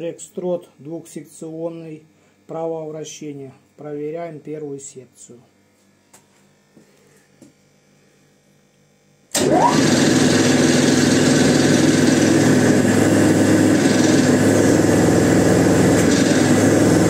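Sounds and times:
hydraulic pump whining: 0:09.3 - 0:17.0.

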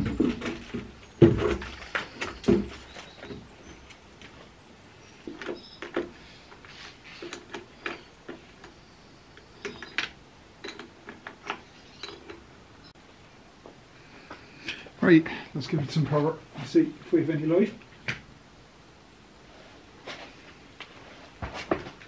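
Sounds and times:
hand tools clicking and clinking: 0:09.4 - 0:12.5.

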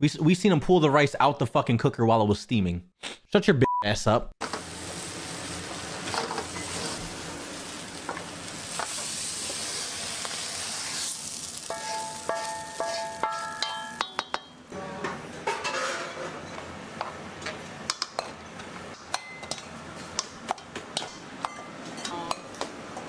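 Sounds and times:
food sizzling: 0:04.4 - 0:14.7.

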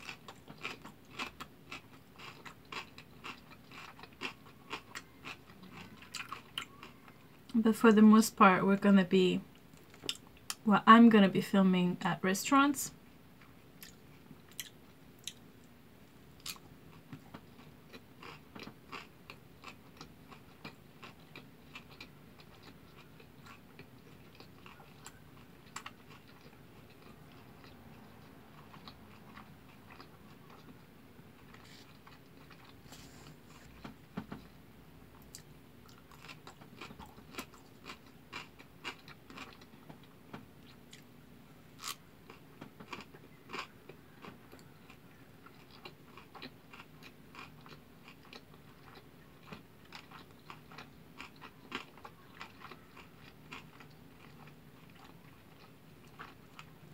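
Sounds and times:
person chewing: 0:00.0 - 0:07.5, 0:09.7 - 0:10.6, 0:13.4 - 0:15.7, 0:16.4 - 0:34.0, 0:35.1 - 0:41.1, 0:41.8 - 0:56.8.

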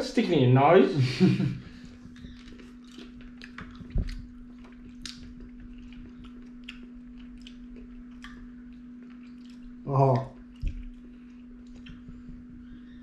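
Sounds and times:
steady low hum: 0:00.0 - 0:13.0
chewing jelly beans: 0:01.9 - 0:12.2.

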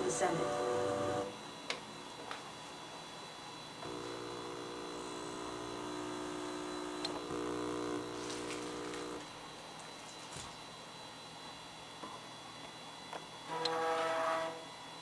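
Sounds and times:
electronic buzz of held tones: 0:00.0 - 0:01.4, 0:03.8 - 0:09.4, 0:13.5 - 0:14.7.

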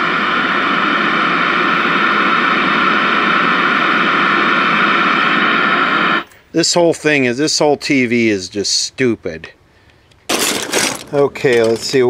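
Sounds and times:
tv speaker static hiss: 0:00.0 - 0:09.7, 0:10.7 - 0:12.0.

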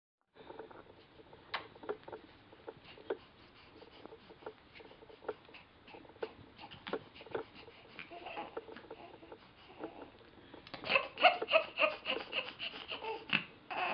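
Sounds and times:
baby vocal sound: 0:05.9 - 0:13.9.

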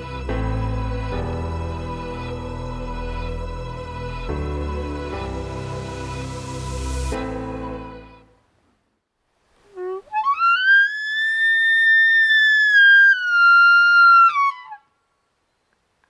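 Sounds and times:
elk bugling: 0:09.6 - 0:14.9.

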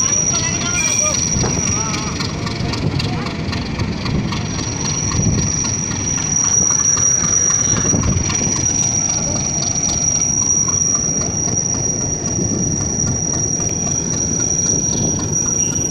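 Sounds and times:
thin high steady tone: 0:00.0 - 0:02.2
rushing noise: 0:00.0 - 0:15.9
train wheels rumbling on rails: 0:00.0 - 0:15.9.

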